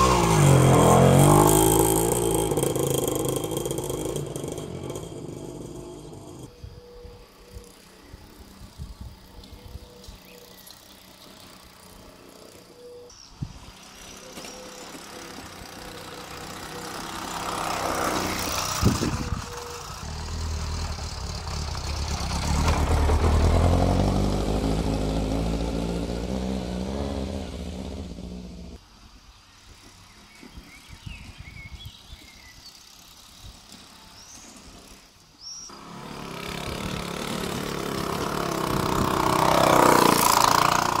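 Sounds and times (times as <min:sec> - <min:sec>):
moped engine running: 0:00.0 - 0:06.5, 0:13.6 - 0:28.8, 0:35.7 - 0:41.0
moped approaching: 0:00.0 - 0:28.8, 0:32.0 - 0:41.0.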